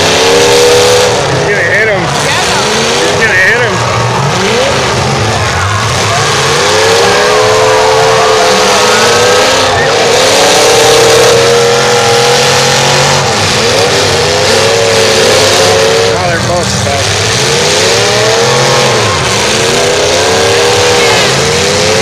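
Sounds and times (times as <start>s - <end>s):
car engines revving hard: 0.0s - 22.0s.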